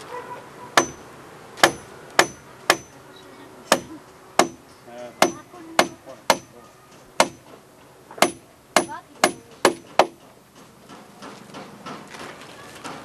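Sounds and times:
hammer striking timber beam: 0.8 - 1.0, 1.6 - 3.0, 3.7 - 4.6, 5.2 - 6.6, 7.2 - 7.6, 8.2 - 12.1.

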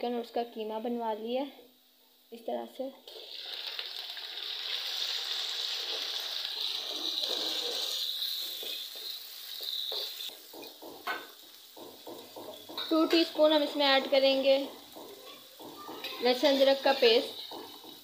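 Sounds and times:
meat sizzling in hot oil: 3.1 - 18.0.

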